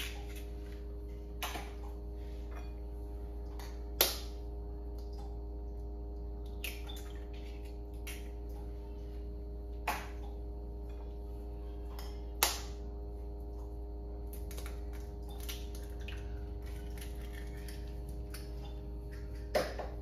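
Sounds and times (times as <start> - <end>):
background hum: 0.0 - 20.0
eggs cracking against bowl: 6.4 - 8.6, 11.9 - 12.9, 14.2 - 20.0.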